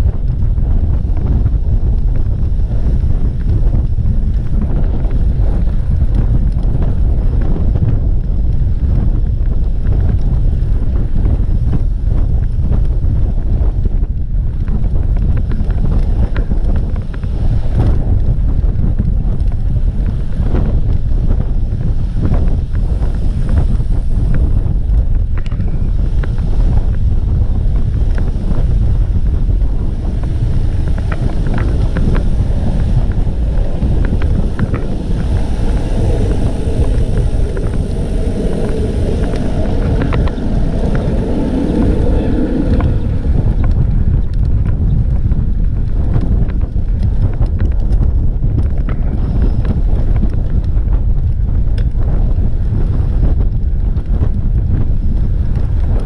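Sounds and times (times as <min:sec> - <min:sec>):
wind buffeting microphone: 0:00.0 - 0:56.0.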